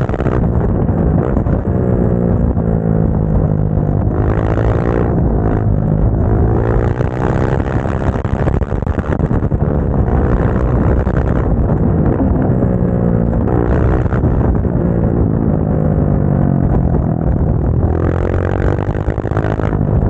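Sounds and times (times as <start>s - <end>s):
motorcycle engine accelerating: 0.0s - 20.0s
wind noise on microphone: 0.0s - 20.0s.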